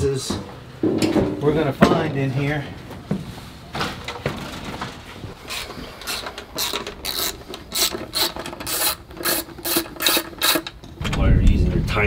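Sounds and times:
hand ratchet clicking: 5.5s - 10.8s.

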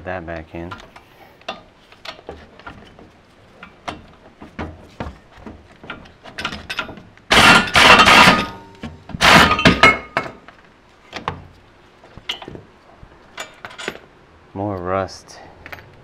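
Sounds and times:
air impact wrench hammering: 7.3s - 10.4s.

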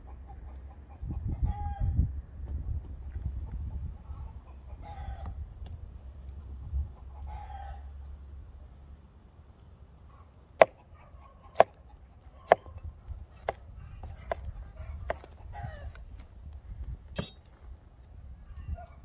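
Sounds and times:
knife chopping on plastic board: 15.1s - 15.3s.

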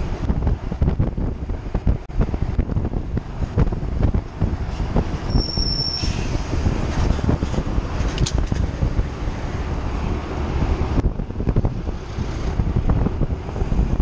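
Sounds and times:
road rumble: 0.0s - 14.0s
wind rushing over microphone: 0.0s - 14.0s
high steady squeal: 5.2s - 6.6s.

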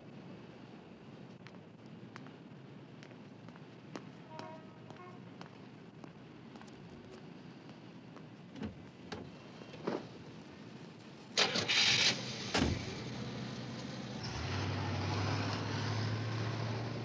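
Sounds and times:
car engine humming: 11.4s - 17.0s
car door slammed shut: 12.5s - 12.9s.

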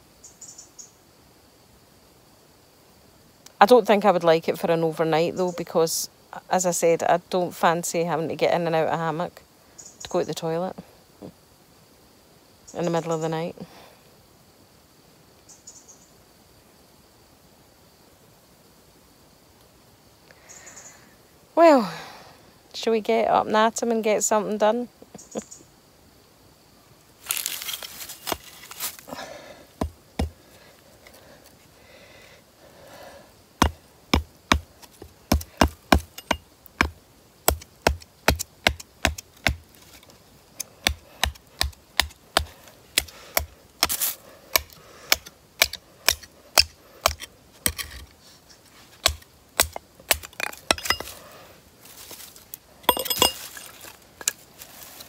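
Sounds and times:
rustle: 0.0s - 55.0s
hatchet chopping wood: 29.8s - 30.4s, 33.6s - 39.6s, 40.8s - 48.0s, 49.0s - 51.1s.

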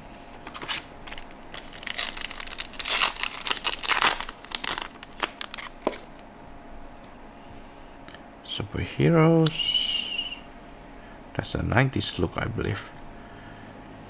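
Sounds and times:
foil wrapper crinkling: 0.4s - 6.2s.

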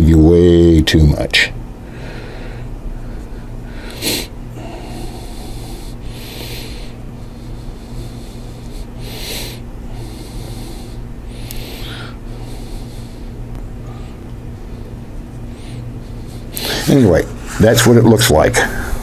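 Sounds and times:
steady low hum: 0.0s - 19.0s
person breathing out through nose: 1.9s - 14.2s.

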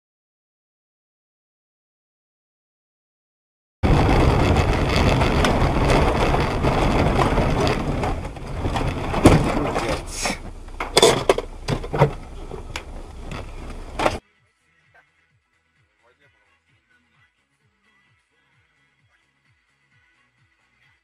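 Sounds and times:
road and wind noise: 3.8s - 14.2s
vehicle collision bangs: 3.8s - 14.2s.

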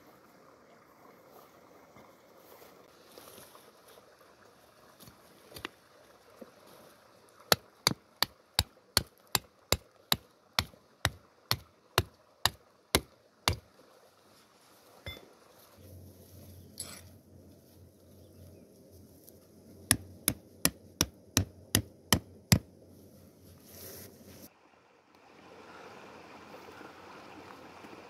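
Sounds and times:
hammer striking tent stake: 9.0s - 13.6s, 19.9s - 22.7s.

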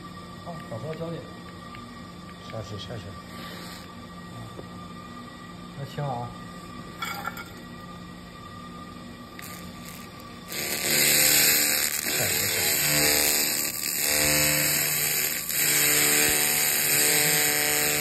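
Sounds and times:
laser cleaning buzzing hiss: 3.3s - 4.0s, 9.4s - 18.0s.

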